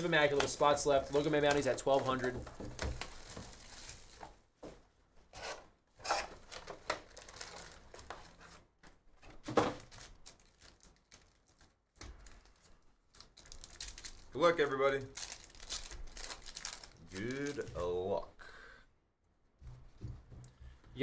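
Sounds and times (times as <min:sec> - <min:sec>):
foil packs rustling and crinkling: 0:00.0 - 0:04.5, 0:06.2 - 0:08.7, 0:09.3 - 0:18.1.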